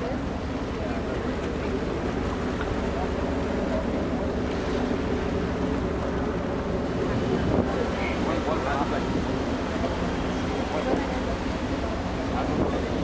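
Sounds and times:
wind buffeting microphone: 5.8s - 11.2s.

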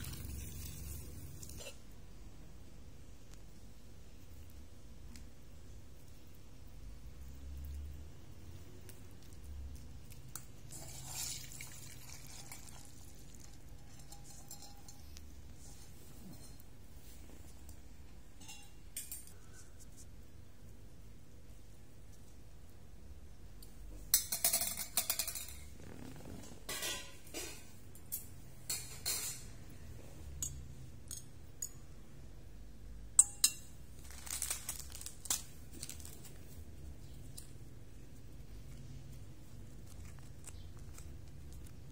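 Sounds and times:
water splashing into a strainer: 10.7s - 13.6s
rustling: 34.0s - 37.5s.

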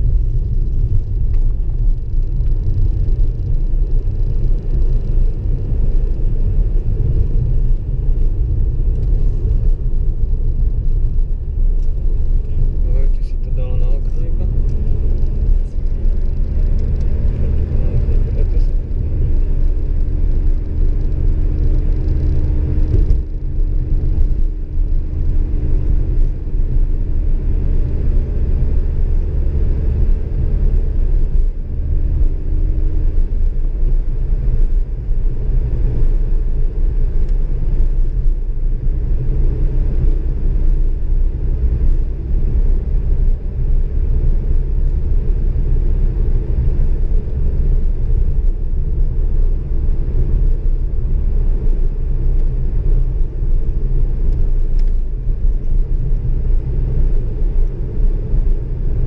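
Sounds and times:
engine and tyres rumbling on asphalt: 0.0s - 59.0s
faint engine hum: 0.0s - 59.0s.

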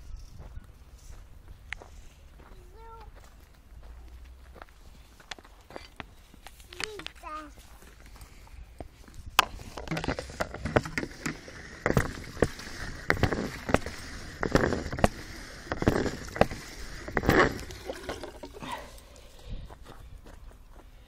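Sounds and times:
camera handling knocks and rustling: 9.3s - 12.5s.

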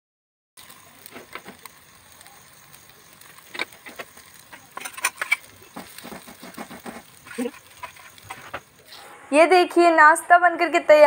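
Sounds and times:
oil sizzling: 0.6s - 11.0s
spoon scraping a pan: 3.5s - 8.7s.

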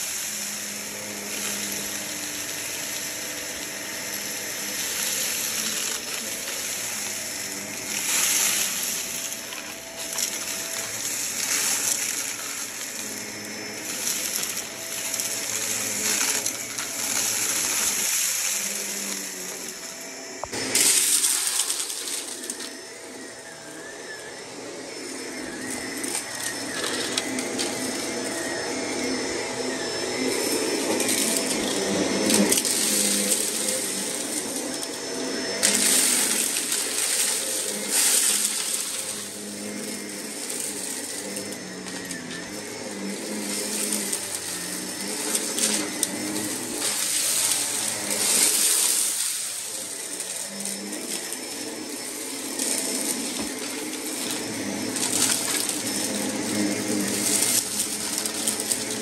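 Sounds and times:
vacuum cleaner running: 0.0s - 59.0s
vacuum sucking up debris: 0.0s - 59.0s.

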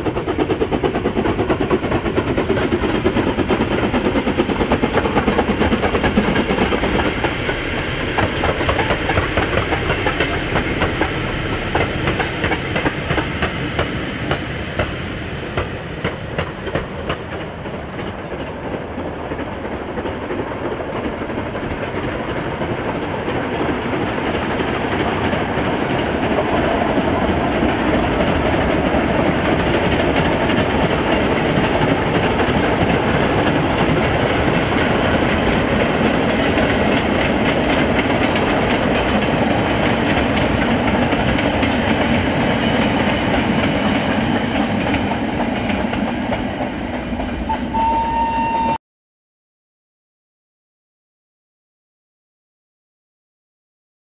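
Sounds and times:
steam locomotive exhaust beats: 0.0s - 48.8s.

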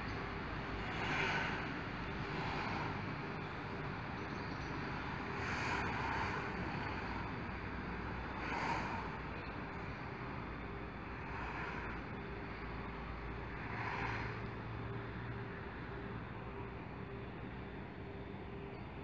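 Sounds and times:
outdoor low rumble and hiss: 0.0s - 19.0s.

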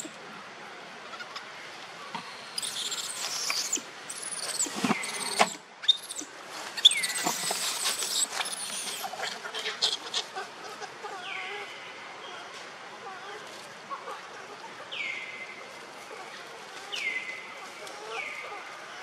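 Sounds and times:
young monkey squealing: 2.5s - 10.5s
dry leaves crackling: 6.1s - 10.4s.

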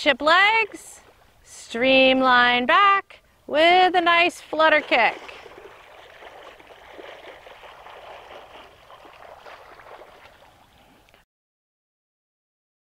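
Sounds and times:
water splashing from kicking: 4.7s - 10.6s.

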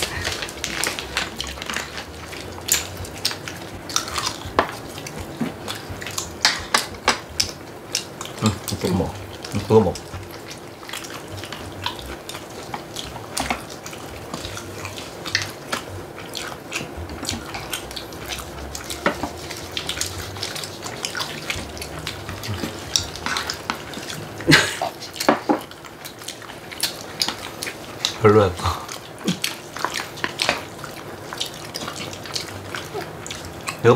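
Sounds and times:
chopsticks tapping dishes: 0.0s - 10.4s, 11.1s - 25.7s
chewing with wet mouth clicks: 0.0s - 33.9s
dishes clattering: 22.3s - 25.7s.

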